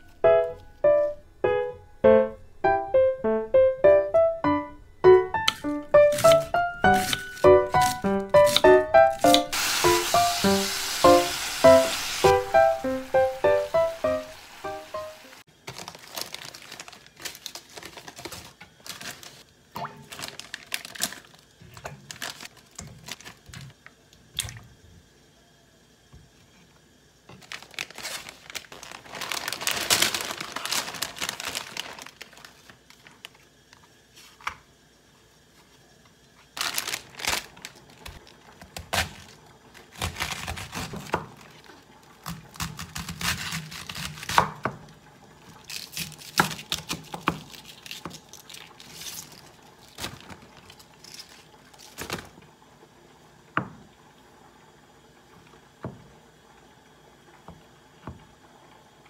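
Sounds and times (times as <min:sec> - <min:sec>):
plastic packaging crinkling: 0:05.4 - 0:10.4, 0:15.5 - 0:23.8, 0:27.3 - 0:33.5, 0:36.5 - 0:44.4, 0:45.5 - 0:52.4
knife crunching through cabbage: 0:05.5 - 0:09.8, 0:36.6 - 0:41.2, 0:42.2 - 0:44.5.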